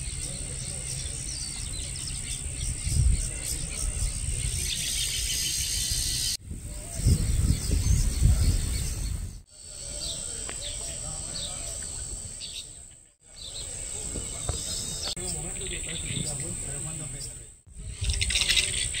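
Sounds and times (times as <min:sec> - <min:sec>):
insects buzzing: 0:00.0 - 0:06.4, 0:09.5 - 0:19.0
small birds chirping: 0:00.0 - 0:19.0
wind on microphone rumble: 0:01.6 - 0:09.4, 0:17.7 - 0:19.0.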